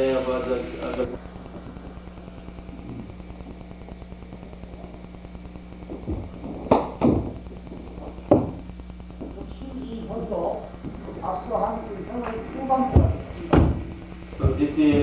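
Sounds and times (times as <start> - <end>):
steady low hum: 0.0 - 15.0
feet thumping on wooden floor: 5.9 - 8.6, 12.8 - 15.0.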